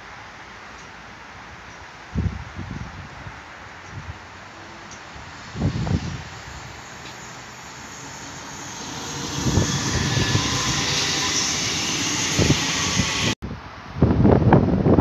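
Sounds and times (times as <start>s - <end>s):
train passing on rails: 3.3s - 13.4s
wind buffeting microphone: 5.0s - 15.0s.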